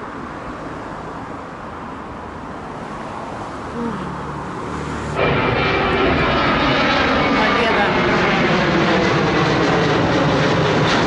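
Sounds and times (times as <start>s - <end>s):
faint street noise: 0.0s - 5.2s
jet airliner passing overhead: 2.7s - 11.0s.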